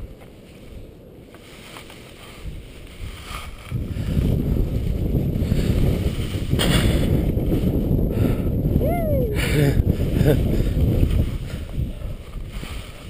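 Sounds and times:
rustling scrape: 0.0 - 7.9, 10.6 - 13.0
wind buffeting microphone: 0.0 - 13.0.

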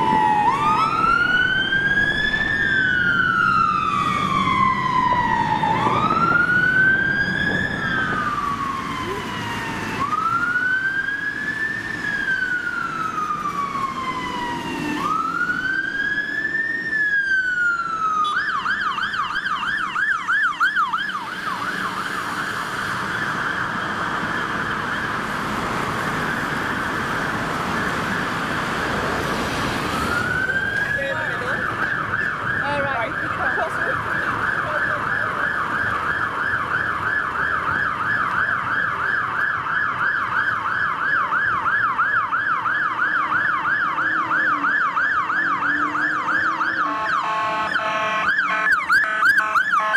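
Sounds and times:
fire engine siren: 0.0 - 49.9
road traffic rumble: 0.0 - 49.9.

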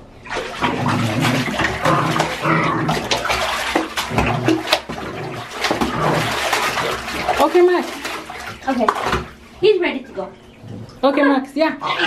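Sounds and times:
bathwater sloshing and splashing: 0.0 - 12.0
dog growling: 0.7 - 3.2, 4.1 - 6.5.

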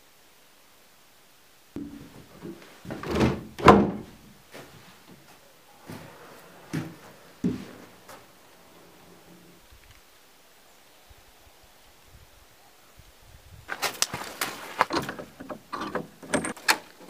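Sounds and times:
wooden door knocks and thuds: 1.8 - 4.2.

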